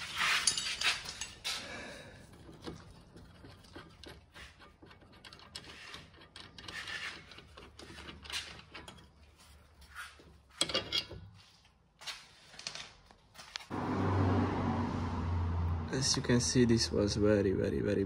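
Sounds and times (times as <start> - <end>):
metal clicks and scrapes: 0.0 - 1.6, 2.2 - 11.4.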